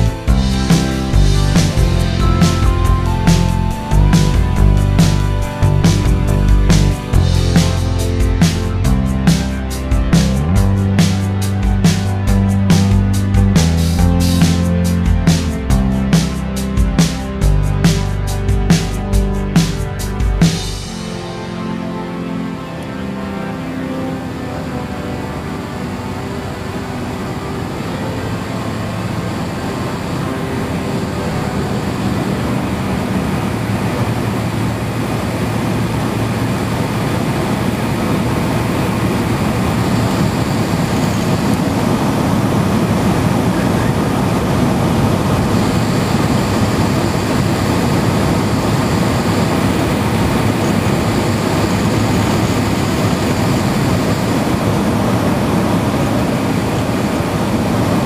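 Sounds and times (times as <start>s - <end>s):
propeller aircraft engine drone: 0.0s - 58.0s
rushing wind: 31.0s - 58.0s.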